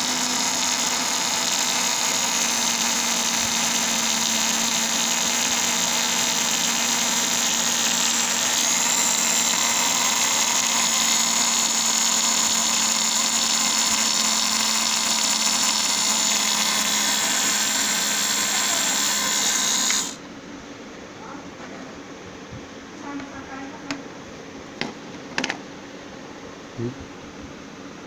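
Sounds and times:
small electric motor whining: 0.0s - 20.2s.

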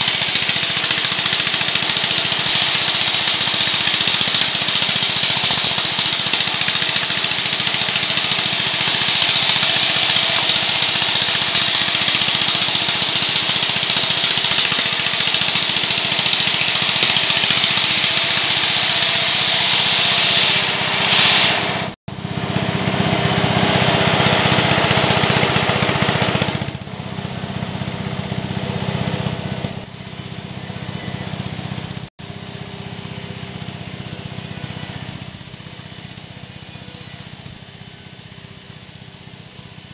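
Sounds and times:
band saw sawing log: 0.0s - 29.9s.

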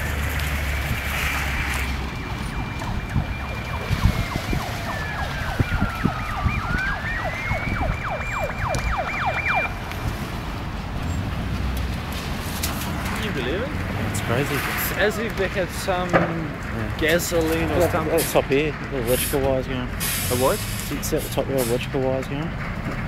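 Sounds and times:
siren with slow wail: 0.1s - 10.3s
siren with rapid sweeps: 0.6s - 9.8s.

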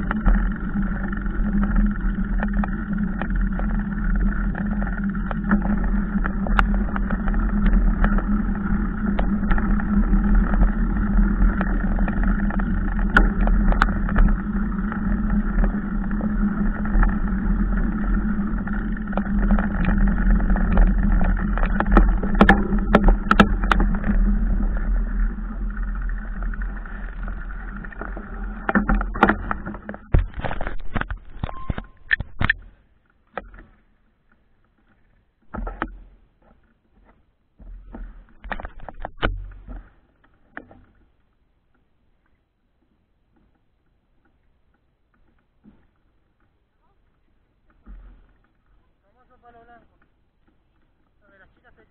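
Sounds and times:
bike knocks and rattles: 0.0s - 32.7s
bike tyres rumbling on dirt: 0.0s - 32.9s.

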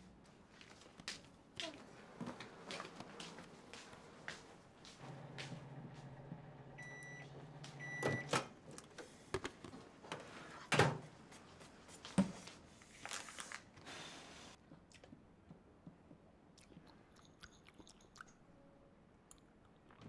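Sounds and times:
microwave oven humming: 5.0s - 8.6s
microwave beeping: 5.1s - 8.6s.

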